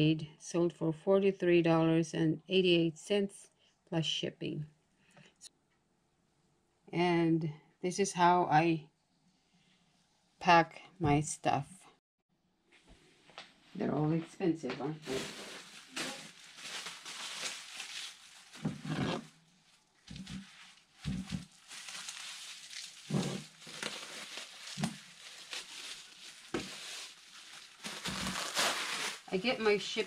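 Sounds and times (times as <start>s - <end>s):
bubble wrap crinkling: 15.0s - 30.0s.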